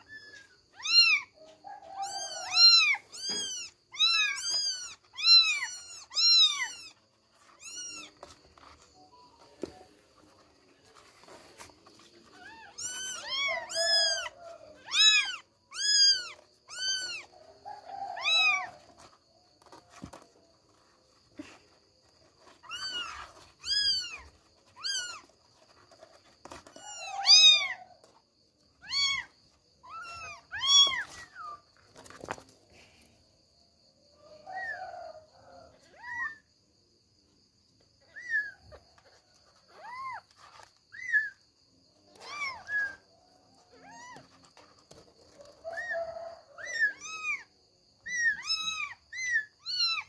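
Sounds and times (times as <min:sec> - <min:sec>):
kittens mewing: 0:00.0 - 0:08.4, 0:11.9 - 0:17.3.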